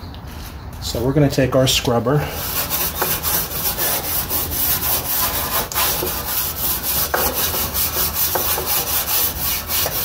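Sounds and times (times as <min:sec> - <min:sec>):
scrubber scrubbing metal: 0:02.4 - 0:10.0.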